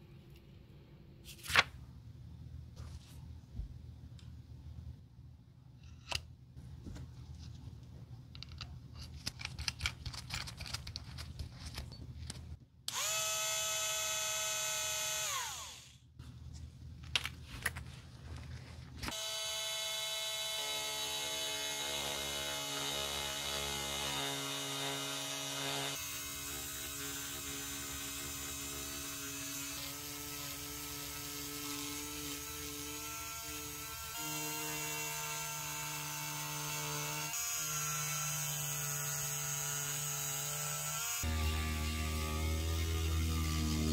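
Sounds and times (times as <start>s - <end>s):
rotary tool sanding leather: 20.0s - 43.9s.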